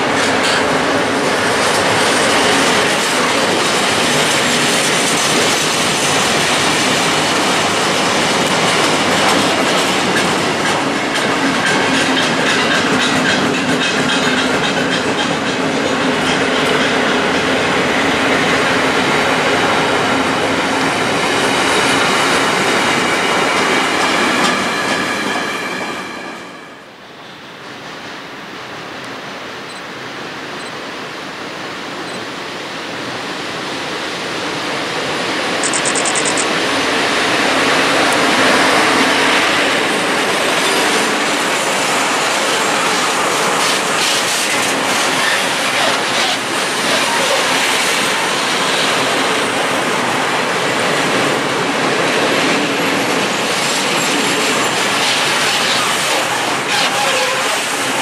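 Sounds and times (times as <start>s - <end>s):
freight train passing: 0.0s - 58.0s
wheels clicking over rail joints: 1.6s - 17.5s.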